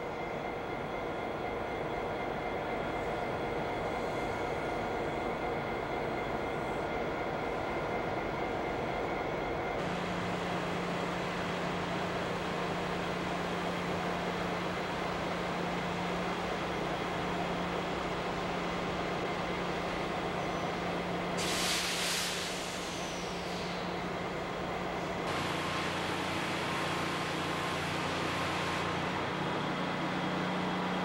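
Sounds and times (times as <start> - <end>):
diesel locomotives idling: 0.0 - 31.0
loud hiss: 21.4 - 23.9.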